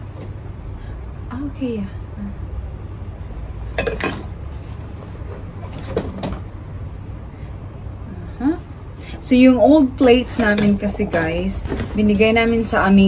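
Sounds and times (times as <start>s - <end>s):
ceramic bowls clinking: 3.7s - 4.4s, 10.2s - 11.6s.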